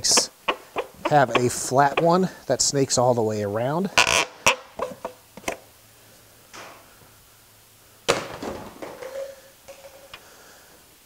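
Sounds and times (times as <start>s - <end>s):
engine parts knocking and clicking: 0.0s - 2.2s.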